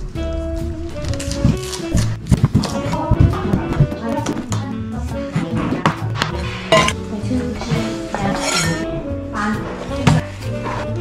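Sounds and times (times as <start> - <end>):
background music: 0.0 - 11.0
kitchenware clinking: 6.7 - 7.0, 8.2 - 8.9.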